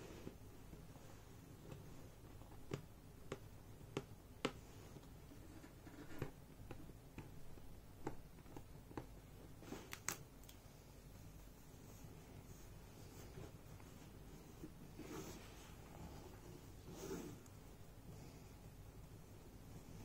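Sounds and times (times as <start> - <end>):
tape clicking and crackling: 6.0 - 10.7.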